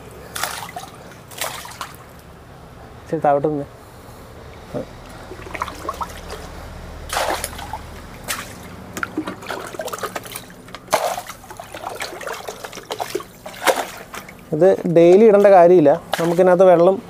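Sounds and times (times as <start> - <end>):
water sloshing in a bucket: 0.0 - 2.3, 4.4 - 17.0
water pouring into tank: 4.6 - 14.5.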